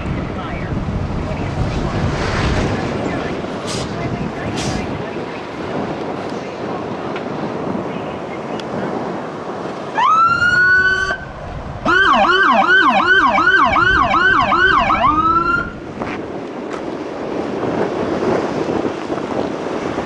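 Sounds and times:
traffic noise: 0.0 - 20.0
electronic emergency siren: 10.0 - 15.8.

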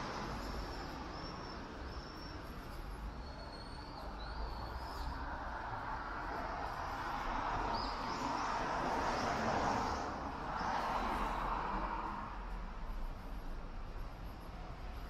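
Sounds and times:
vehicle passing: 5.5 - 14.4.

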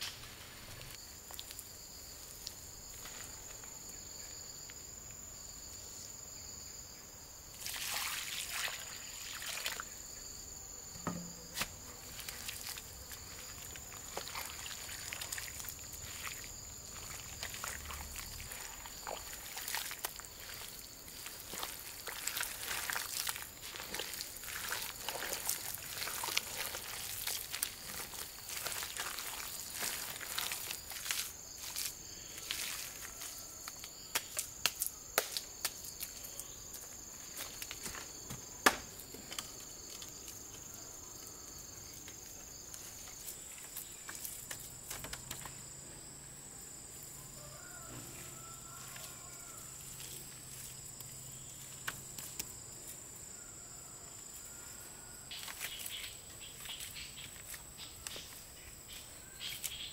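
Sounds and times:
insects chirring: 0.0 - 59.9.

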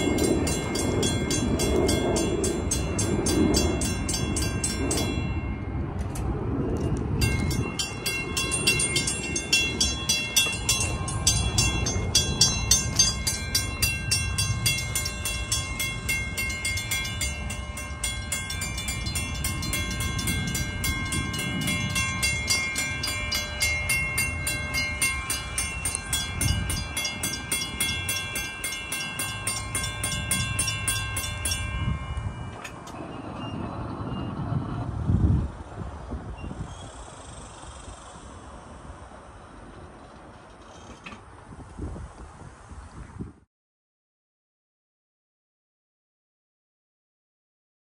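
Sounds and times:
railroad crossing bells ringing: 0.0 - 35.9
wind rumbling on microphone: 0.0 - 43.5.

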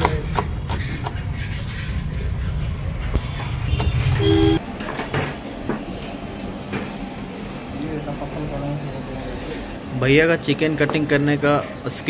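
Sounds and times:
road traffic rumbling: 0.0 - 12.0
vehicle horn toot: 3.7 - 4.6.

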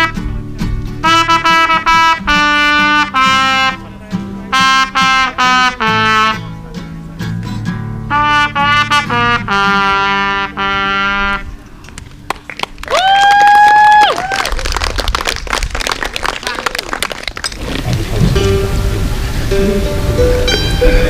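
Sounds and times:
live band music: 0.0 - 11.7, 17.6 - 21.0.

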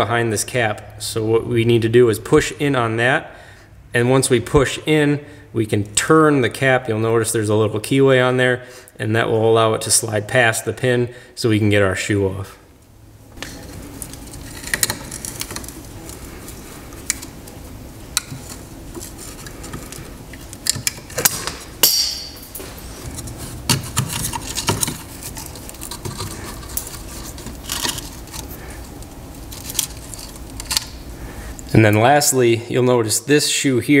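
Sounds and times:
ringing metal clink: 21.8 - 22.6.

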